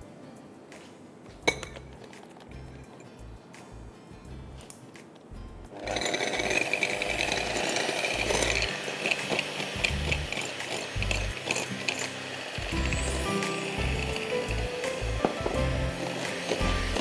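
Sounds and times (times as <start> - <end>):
electric hand mixer running: 5.8 - 17.0
mixer beaters clicking: 5.8 - 17.0.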